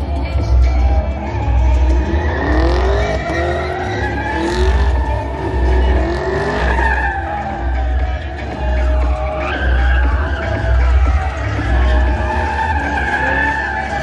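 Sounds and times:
car engine revving: 0.0 - 14.0
tires squealing: 0.0 - 14.0.

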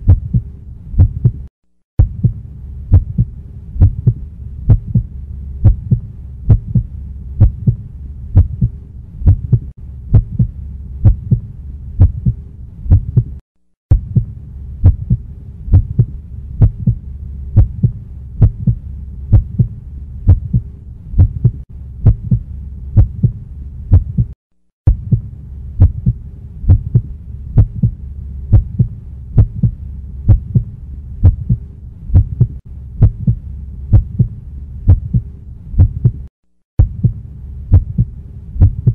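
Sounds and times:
regular thumping rhythm: 0.0 - 7.8, 8.4 - 17.0, 17.6 - 22.4, 23.0 - 34.3, 34.9 - 38.9
low hum: 0.0 - 38.9.

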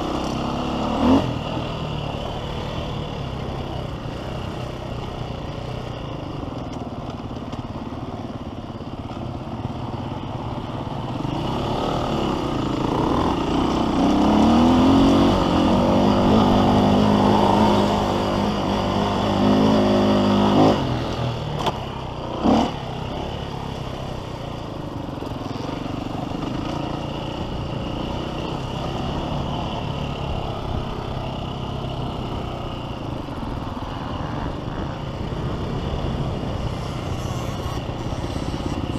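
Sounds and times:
dirt bike engine revving: 0.0 - 3.0, 11.0 - 24.2, 36.0 - 38.9.

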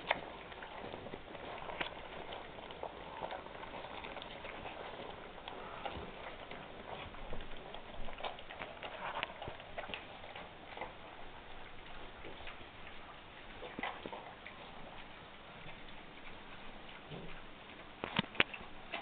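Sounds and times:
puppies chewing and slurping: 0.0 - 19.0.

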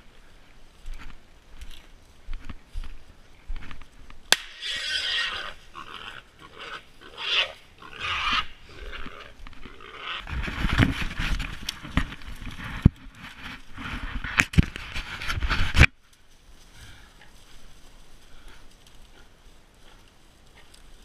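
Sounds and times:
hog squealing: 4.6 - 9.0
rustling in brush: 10.1 - 21.0.

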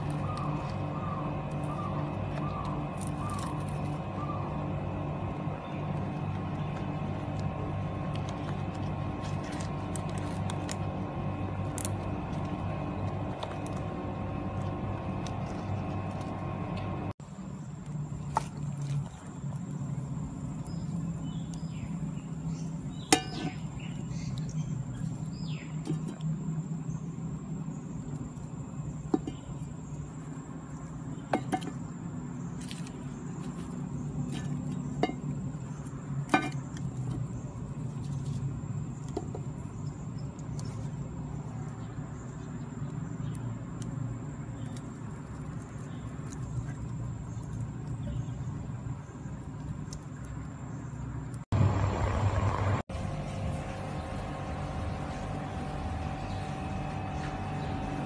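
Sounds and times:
low rumble: 51.5 - 58.0.

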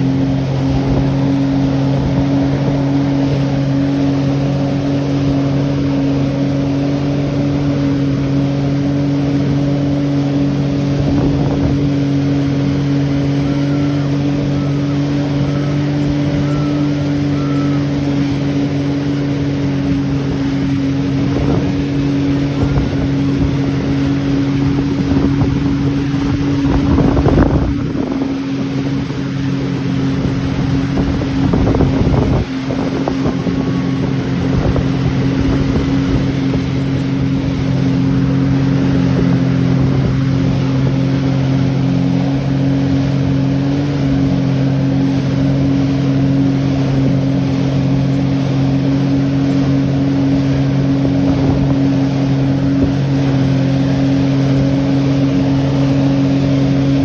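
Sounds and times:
motorboat engine running: 0.0 - 57.0
water rushing: 0.0 - 57.0
wind noise: 10.7 - 12.3, 20.4 - 41.2, 50.8 - 53.6.

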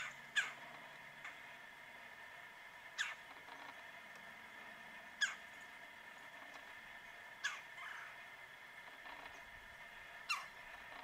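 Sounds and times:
woodpecker calling: 0.0 - 1.4, 2.9 - 3.4, 5.2 - 5.7, 7.4 - 8.2, 10.2 - 11.0.

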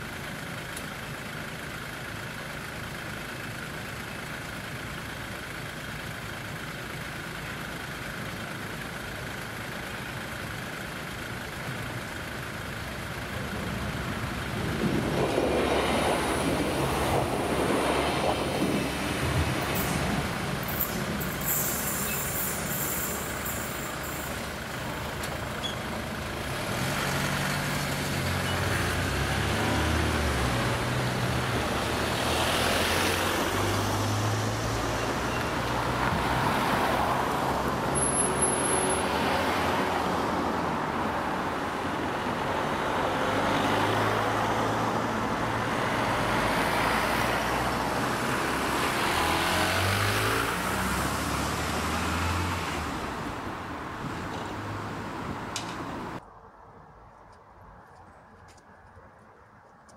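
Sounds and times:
cars driving past: 12.6 - 56.3.

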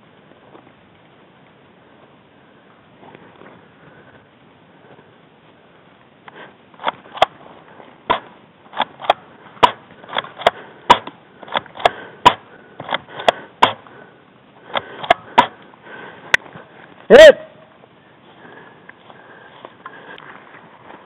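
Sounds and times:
airsoft gun shots: 8.1 - 13.8, 15.0 - 15.6.

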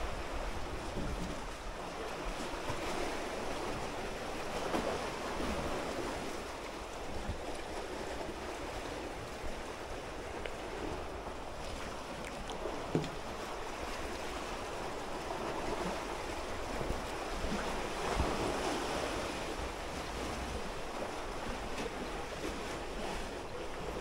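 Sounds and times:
sea waves washing on shore: 0.0 - 24.0
wind rumbling on microphone: 0.0 - 24.0.

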